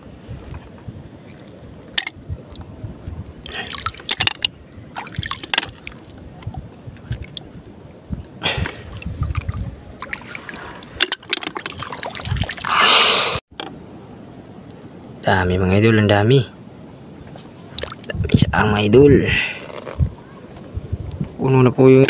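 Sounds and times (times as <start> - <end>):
hands splashing in shallow water: 8.7 - 12.8.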